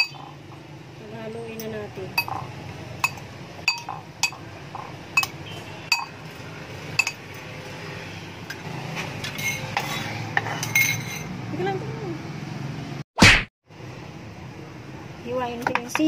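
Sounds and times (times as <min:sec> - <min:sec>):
cutlery clinking against ceramic bowl: 0:00.0 - 0:00.3, 0:01.6 - 0:06.2, 0:07.0 - 0:07.4, 0:09.2 - 0:11.3
spoon scraping and stirring: 0:09.0 - 0:11.3.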